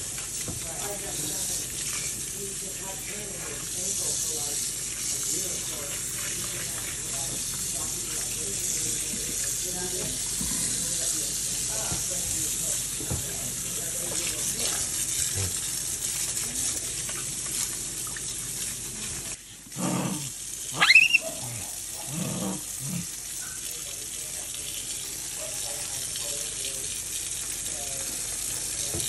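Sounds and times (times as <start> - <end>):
faucet running into sink: 0.0 - 29.0
monkey squealing: 20.7 - 21.6.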